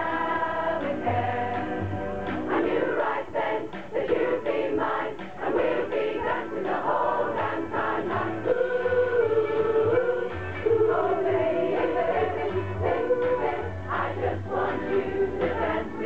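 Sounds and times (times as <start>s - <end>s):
choir singing a pop song: 0.0s - 16.0s.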